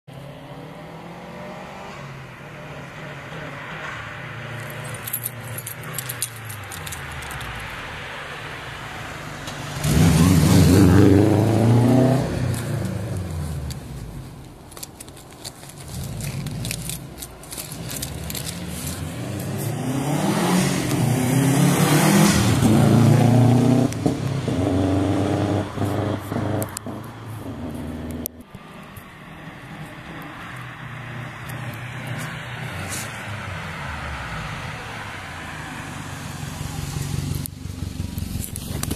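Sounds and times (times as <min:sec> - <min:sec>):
car engine accelerating past: 0:08.5 - 0:13.9, 0:18.3 - 0:28.3.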